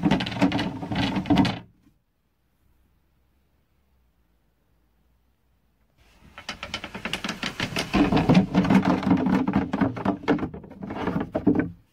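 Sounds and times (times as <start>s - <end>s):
wooden slats clattering: 0.0s - 1.7s, 6.3s - 11.9s.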